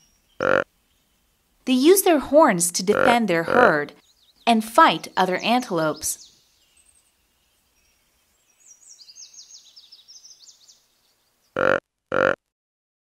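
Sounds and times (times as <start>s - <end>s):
faint high bird chirps: 0.0s - 1.2s, 4.0s - 11.6s.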